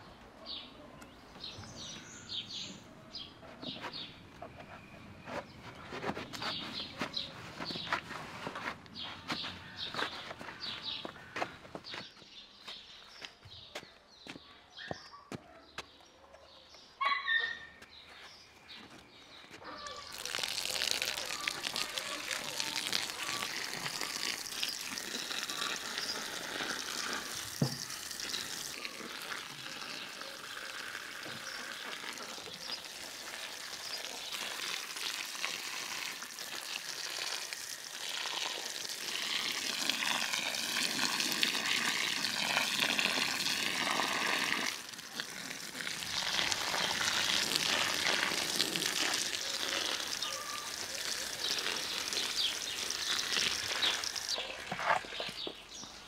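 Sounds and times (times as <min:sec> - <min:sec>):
water spraying from hose: 0:20.0 - 0:55.9.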